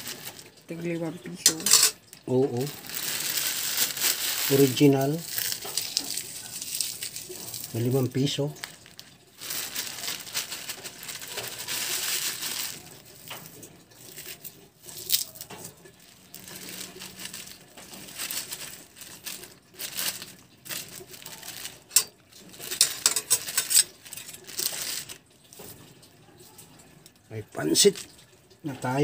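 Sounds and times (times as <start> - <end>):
plastic bag crinkling: 0.0 - 28.4
metal spatula clinking on pan: 1.4 - 2.0.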